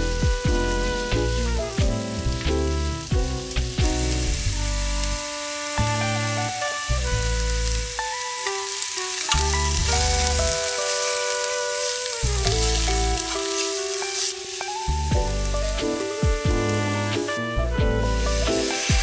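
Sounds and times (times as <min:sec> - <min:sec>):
background music with bass line: 0:00.0 - 0:08.2, 0:09.3 - 0:10.8, 0:12.2 - 0:13.4, 0:14.8 - 0:19.0
vegetables sizzling in a frying pan: 0:00.0 - 0:17.4, 0:18.0 - 0:19.0
chopsticks stirring: 0:07.5 - 0:17.4.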